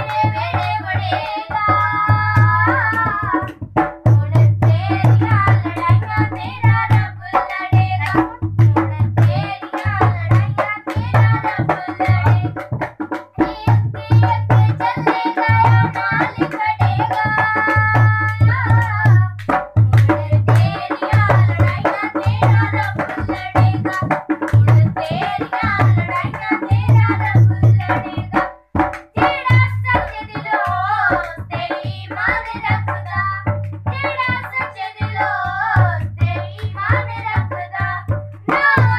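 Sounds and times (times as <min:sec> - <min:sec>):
steady drum beat: 0:00.0 - 0:38.9
children singing: 0:34.2 - 0:38.9.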